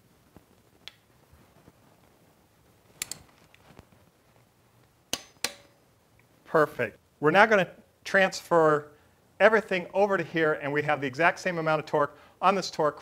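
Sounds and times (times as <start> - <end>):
sharp metallic click: 3.0 - 3.3, 5.1 - 5.8.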